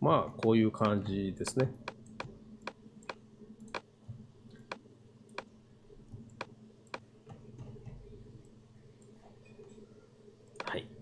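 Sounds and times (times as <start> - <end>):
faint steady low hum: 0.0 - 11.0
computer mouse and keyboard clicks: 0.4 - 3.9, 6.2 - 9.8, 10.5 - 10.8.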